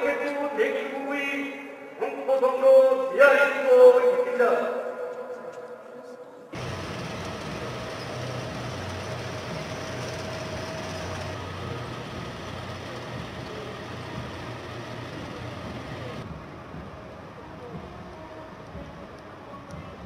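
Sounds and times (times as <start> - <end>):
armoured vehicle engines driving past: 6.6 - 16.2.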